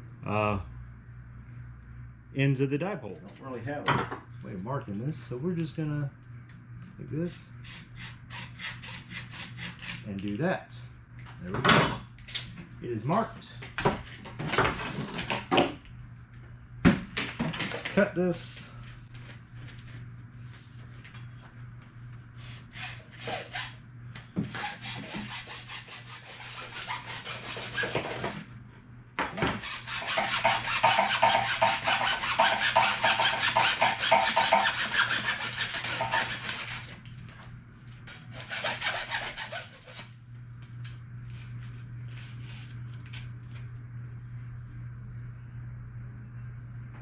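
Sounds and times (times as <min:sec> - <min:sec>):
steady low hum: 0:00.0 - 0:47.0
hacksaw cutting plastic pipe: 0:22.7 - 0:23.7, 0:24.5 - 0:28.4, 0:29.4 - 0:36.9, 0:38.3 - 0:40.1.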